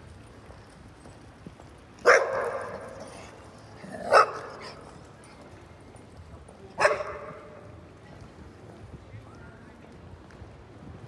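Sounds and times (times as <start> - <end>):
dog barking: 2.0 - 2.9, 4.1 - 4.8, 6.8 - 7.4.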